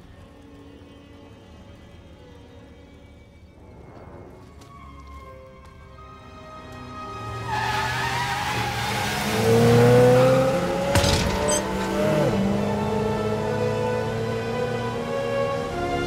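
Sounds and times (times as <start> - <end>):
dramatic film score: 0.0 - 16.0
tires squealing on dirt: 6.8 - 13.5
sharp crash: 10.8 - 12.0.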